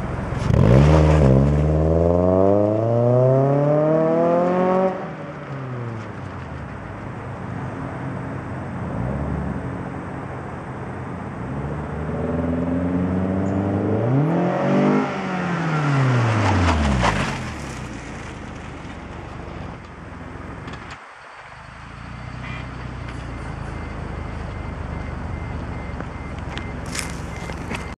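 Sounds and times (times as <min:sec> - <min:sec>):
low steady engine rumble: 0:17.6 - 0:27.9.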